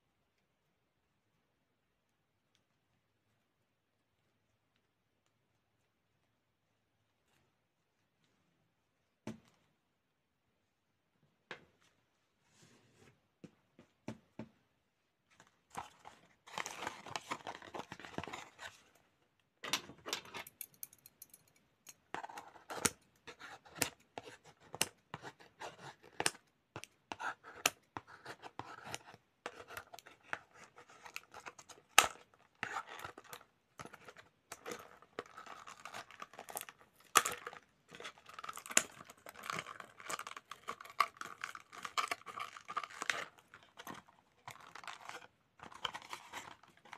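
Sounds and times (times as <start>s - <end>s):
cardboard rustling and scraping: 15.4s - 18.9s, 42.9s - 46.9s.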